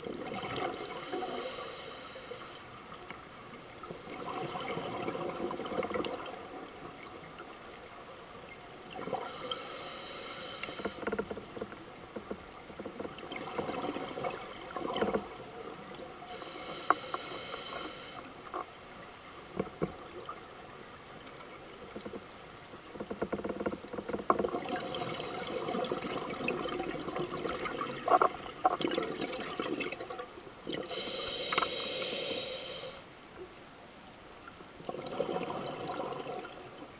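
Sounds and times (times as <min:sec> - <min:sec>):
hissing regulator inhalations: 0:00.7 - 0:02.7, 0:09.2 - 0:11.0, 0:16.3 - 0:19.5, 0:30.8 - 0:33.1.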